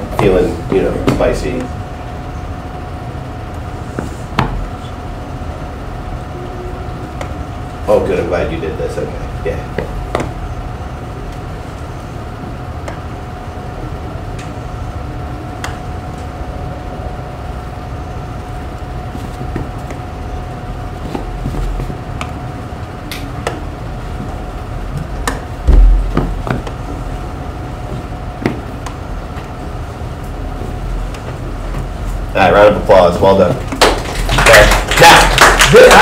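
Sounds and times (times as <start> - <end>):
steady hum with faint whine: 0.0 - 36.0
loud thump: 25.6 - 26.6.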